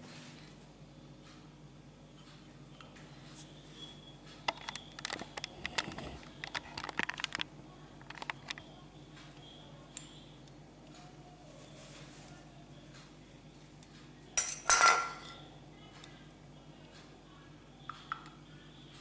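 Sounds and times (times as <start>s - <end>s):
faint steady hum: 0.0s - 19.0s
clicks and clatters of test gear: 4.5s - 8.7s.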